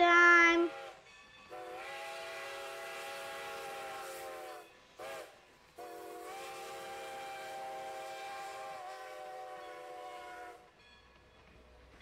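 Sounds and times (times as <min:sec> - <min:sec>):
train whistle blasts: 0:00.6 - 0:10.7.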